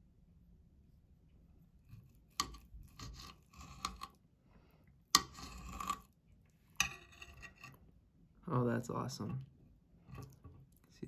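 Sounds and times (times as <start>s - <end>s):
knife scraping on glass board: 1.9s - 4.2s, 5.1s - 7.8s.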